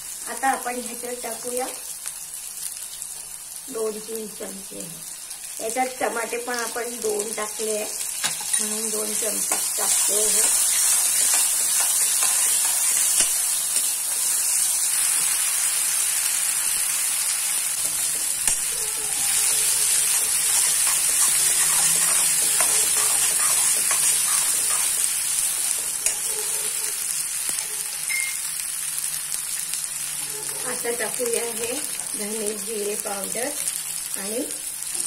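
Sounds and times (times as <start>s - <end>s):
onions sizzling in a pan: 0.0s - 35.0s
spoon scraping a steel pan: 19.1s - 25.1s.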